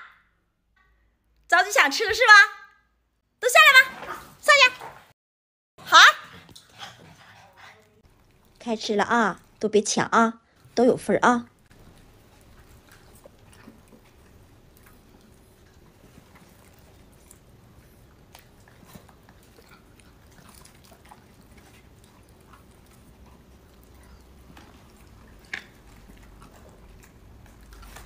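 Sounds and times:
dogs chewing and licking: 6.3 - 9.6, 11.5 - 28.0.

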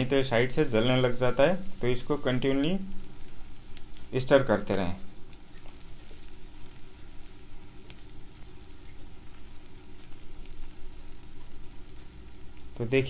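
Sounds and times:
onions sizzling in hot oil: 0.0 - 13.0.

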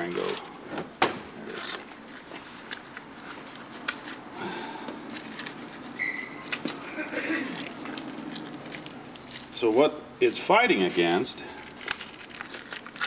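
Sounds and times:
brief high squeak: 6.0 - 6.5.

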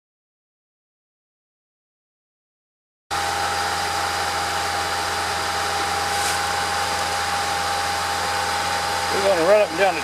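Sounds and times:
rail motorcar engine idling: 3.1 - 10.0.

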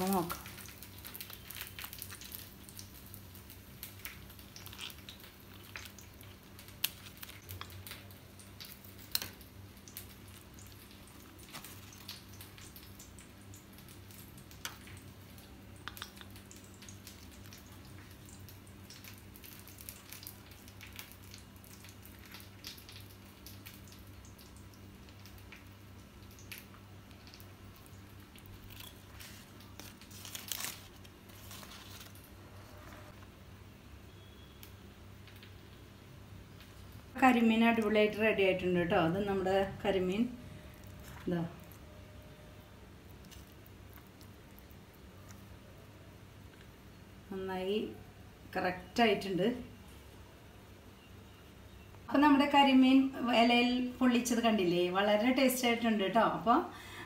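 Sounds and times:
leaves crinkling: 0.0 - 12.8, 27.8 - 33.3.

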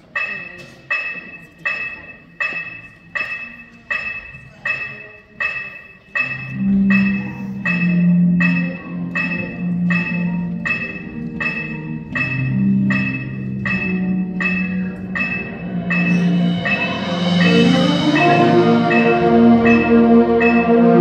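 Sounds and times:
bell-like mallet percussion: 0.0 - 21.0
low brass and woodwinds: 16.8 - 21.0.

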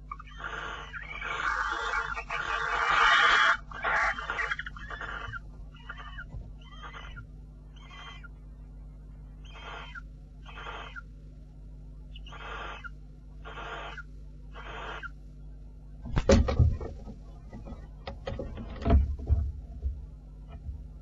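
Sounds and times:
low electrical hum: 0.0 - 21.0
owl raspy hissing calls: 0.1 - 7.1, 7.8 - 8.2, 9.4 - 11.0, 12.2 - 15.2.

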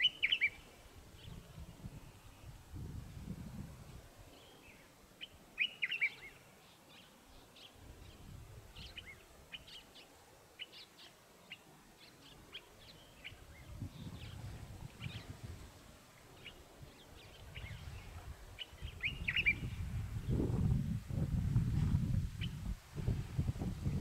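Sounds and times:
birds chirping: 0.0 - 1.5, 4.3 - 15.5, 16.2 - 20.4.

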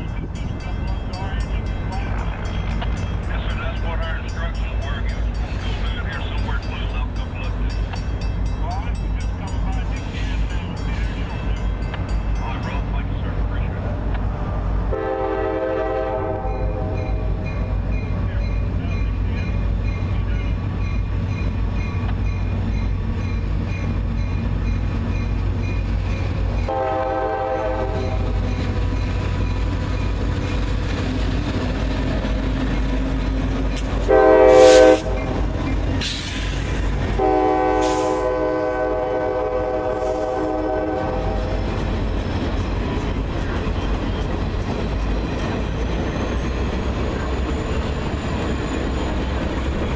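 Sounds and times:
diesel locomotive rumble: 0.0 - 49.9
train cars rolling past: 0.0 - 49.9
locomotive air horn blasts: 14.9 - 17.4, 26.7 - 28.4, 34.0 - 36.5, 37.2 - 41.6.

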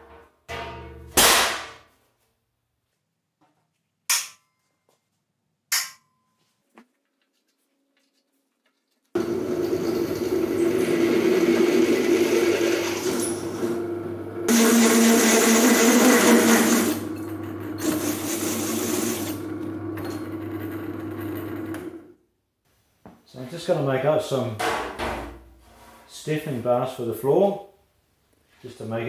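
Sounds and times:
hole saw cutting sheet steel: 9.2 - 13.8, 14.5 - 19.5
drill press motor hum: 9.2 - 22.1.

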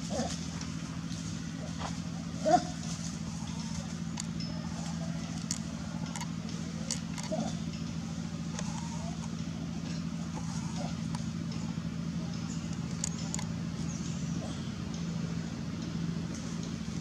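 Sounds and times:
engine humming: 0.0 - 17.0
light clicks: 12.3 - 13.6.

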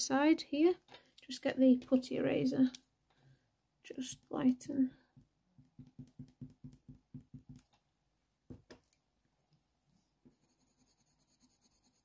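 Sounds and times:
pencil strokes on paper: 10.0 - 12.0
eraser dabbing on paper: 10.4 - 12.0.

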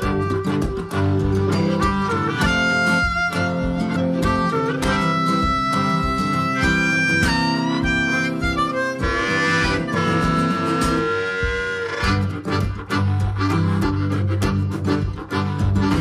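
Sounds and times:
guitar: 0.0 - 16.0
harmonica melody: 0.0 - 16.0
steady beat: 0.0 - 16.0.

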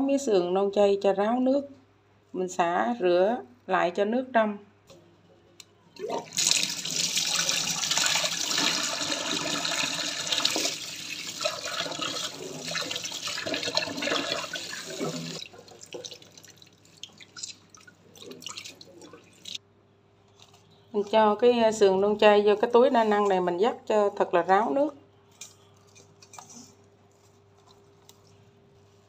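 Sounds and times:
water splashing and dripping: 6.0 - 19.6.

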